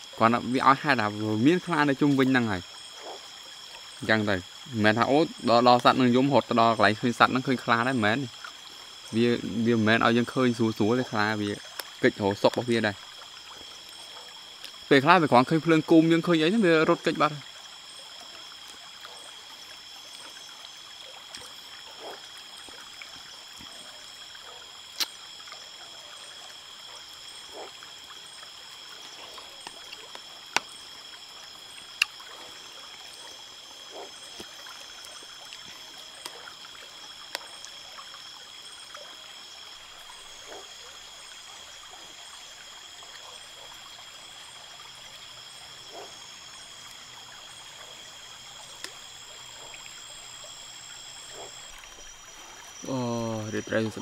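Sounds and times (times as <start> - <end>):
river water flowing: 0.0 - 54.0
high-pitched whine: 51.3 - 54.0.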